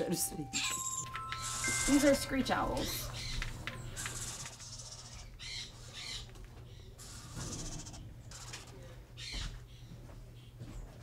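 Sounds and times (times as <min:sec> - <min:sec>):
owl nestlings hissing calls: 0:04.0 - 0:06.3, 0:07.0 - 0:08.7.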